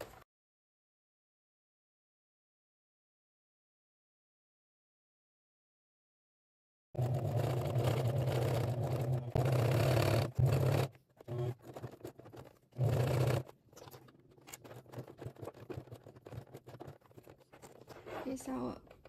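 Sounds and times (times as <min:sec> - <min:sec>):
sewing machine stitching: 0:07.0 - 0:19.0.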